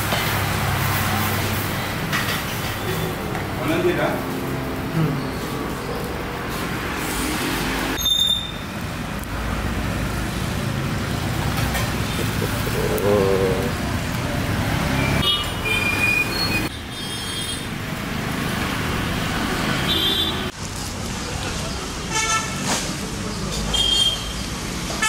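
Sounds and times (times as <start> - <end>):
road traffic passing: 0.0 - 25.0
vehicle horn: 19.9 - 20.5.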